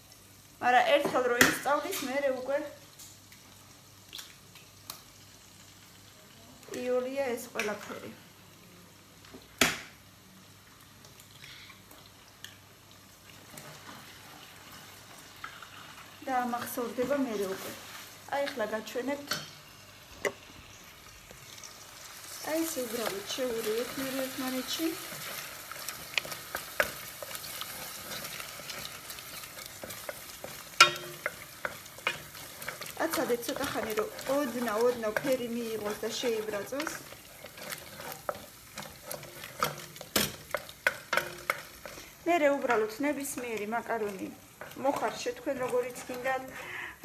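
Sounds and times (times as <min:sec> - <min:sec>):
eggs sizzling in a pot: 0:00.0 - 0:47.0
low kitchen hiss: 0:00.0 - 0:47.0
wooden spoon scraping a pot: 0:22.8 - 0:46.7
spoon clicking on pot: 0:29.8 - 0:32.9.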